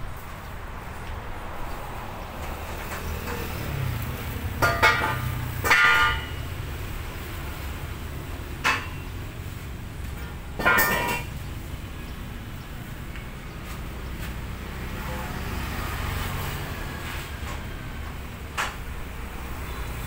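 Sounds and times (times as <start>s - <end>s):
low traffic rumble: 0.0s - 20.0s
steel parts clanking: 10.6s - 11.4s.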